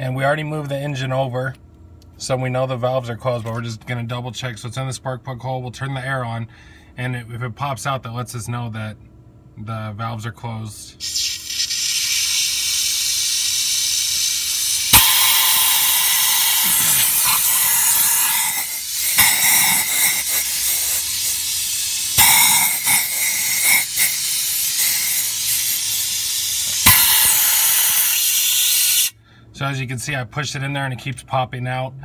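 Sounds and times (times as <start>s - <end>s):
sharp pop of air tool: 11.0s - 29.1s
compressed air hissing: 11.0s - 29.2s.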